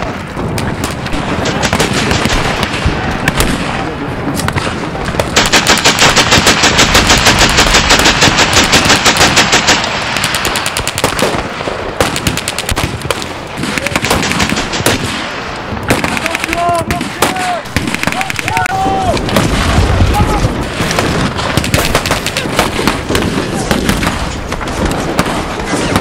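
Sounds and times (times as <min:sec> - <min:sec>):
rifle shots: 0:00.0 - 0:26.0
machine gun burst: 0:05.3 - 0:11.4, 0:19.3 - 0:26.0.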